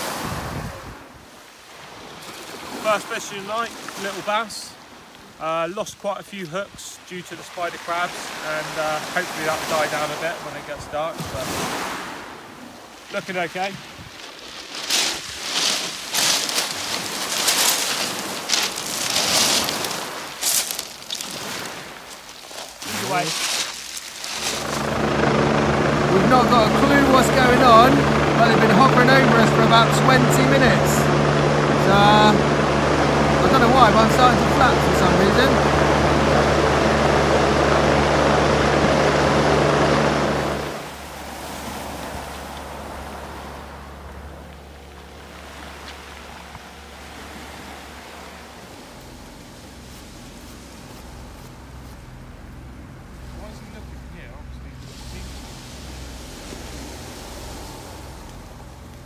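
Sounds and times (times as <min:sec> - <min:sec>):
sea noise: 0:00.0 - 0:59.0
wind: 0:00.0 - 0:59.0
helicopter rotor drone: 0:07.2 - 0:11.2, 0:16.0 - 0:59.0
small waves breaking on stones: 0:13.0 - 0:24.7
footsteps crunching on pebbles: 0:13.8 - 0:25.2, 0:48.9 - 0:52.8.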